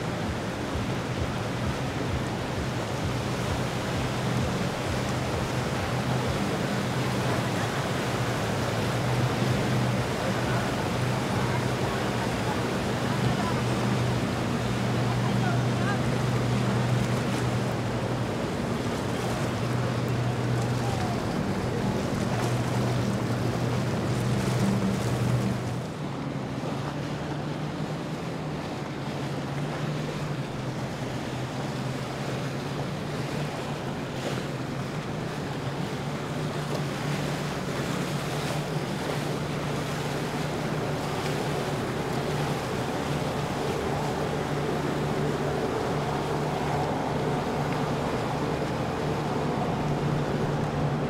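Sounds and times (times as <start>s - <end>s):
motorboat engine running: 0.0s - 51.0s
water wash: 0.0s - 51.0s.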